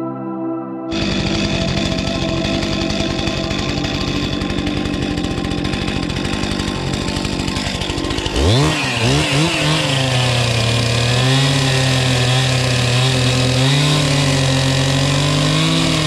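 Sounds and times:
chainsaw carving wood: 0.9 - 16.0.

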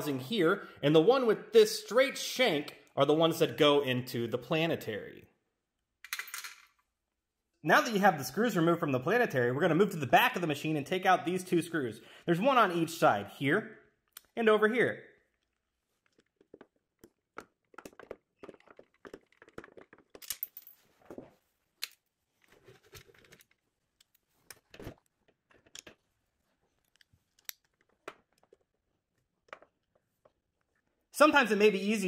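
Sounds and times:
handling rustles: 17.7 - 30.8
screwdriver clicks and scrapes: 26.8 - 28.6.

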